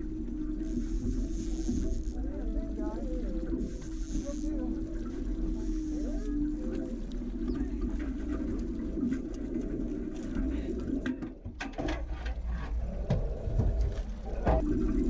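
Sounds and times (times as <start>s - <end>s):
outboard motor running: 0.0s - 11.5s.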